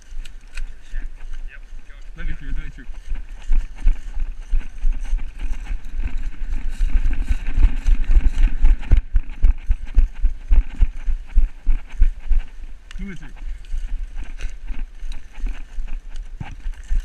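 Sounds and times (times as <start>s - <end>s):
running footsteps in dry leaves: 0.0s - 17.0s.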